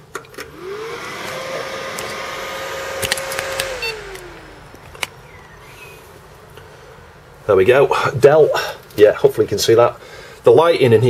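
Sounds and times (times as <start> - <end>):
computer cooling fan whirring: 0.4 - 5.8.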